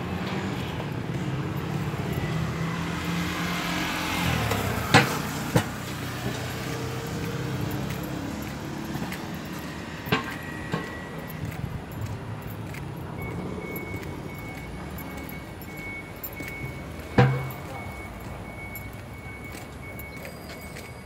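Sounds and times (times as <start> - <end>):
motorcycle passing by: 0.0 - 10.6.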